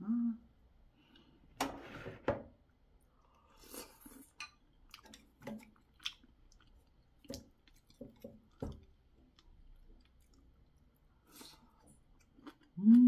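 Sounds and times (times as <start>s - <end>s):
person chewing: 3.3s - 13.0s.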